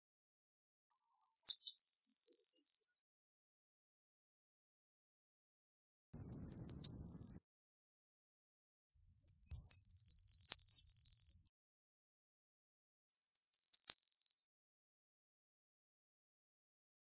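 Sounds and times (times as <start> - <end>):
bird singing with high notes and trill: 0.9 - 3.0, 6.2 - 7.4, 9.0 - 11.5, 13.2 - 14.4.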